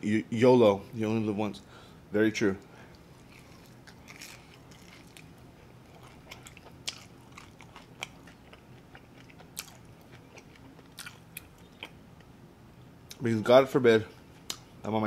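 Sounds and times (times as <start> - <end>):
chewing with crunches: 2.9 - 12.3.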